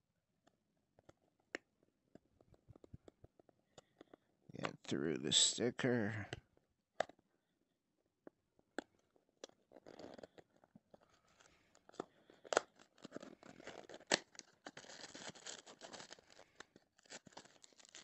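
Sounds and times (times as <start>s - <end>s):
cardboard clicks and snaps: 11.9s - 16.0s.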